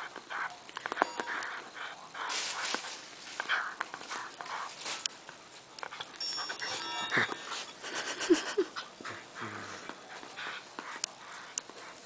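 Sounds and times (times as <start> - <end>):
dog panting: 1.3 - 4.8, 5.8 - 12.0
jingle bell ringing: 6.2 - 7.8.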